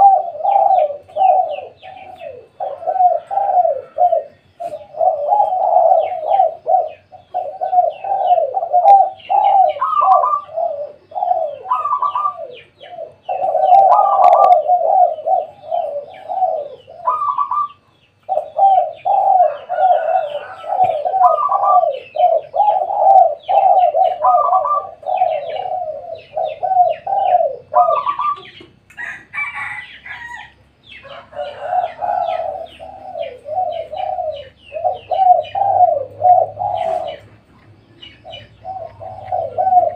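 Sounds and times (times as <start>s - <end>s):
doves cooing: 0.0s - 39.9s.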